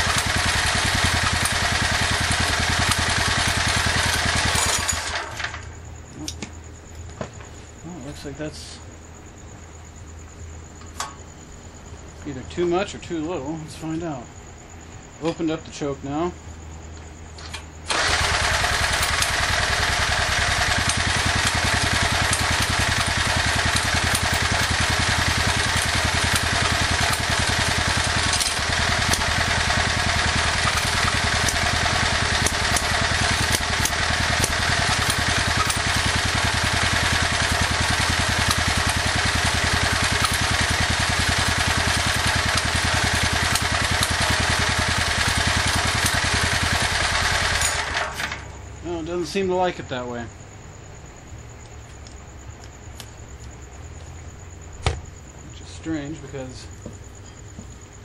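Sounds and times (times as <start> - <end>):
generator engine running: 0.0 - 6.5, 17.9 - 49.7.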